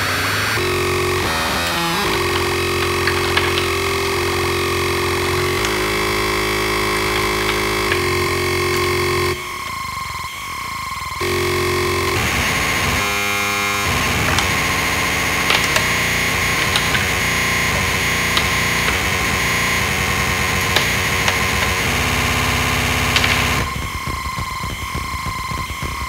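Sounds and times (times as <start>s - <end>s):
buzzy pitched tone: 0.0s - 26.0s
harsh synthesizer noise: 0.0s - 26.0s
sharp clicks: 0.4s - 9.8s, 13.8s - 26.0s
high whistling tones: 0.6s - 12.1s.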